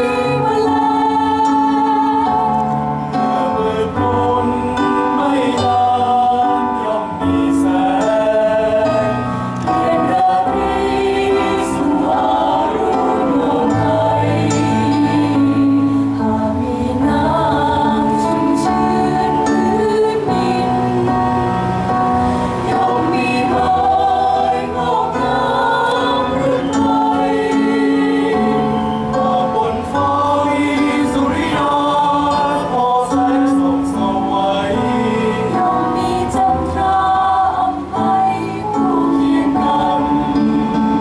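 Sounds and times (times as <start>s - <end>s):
mixed choir singing: 0.0s - 41.0s.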